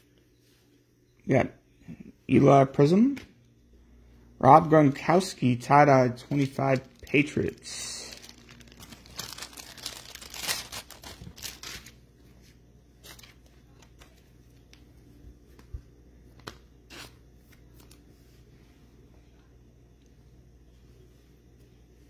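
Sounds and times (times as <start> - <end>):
plastic crinkling and rustling: 6.2 - 14.8.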